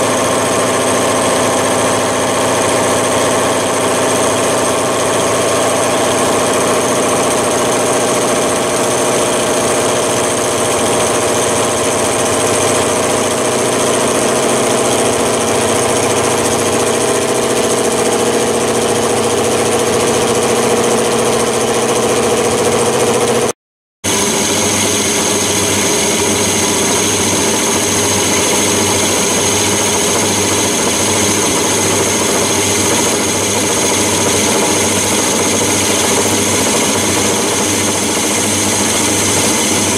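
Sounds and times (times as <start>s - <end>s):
metal lathe cutting steel: 0.0s - 23.5s, 24.1s - 39.9s
motor and gear whine: 24.1s - 39.9s.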